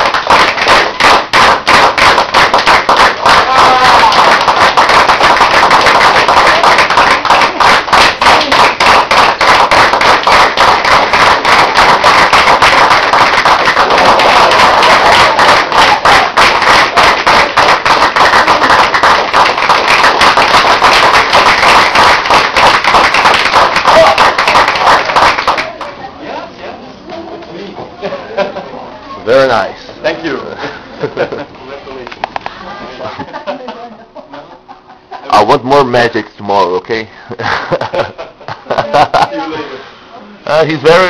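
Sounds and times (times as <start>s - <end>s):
people clapping fast: 0.0s - 26.0s.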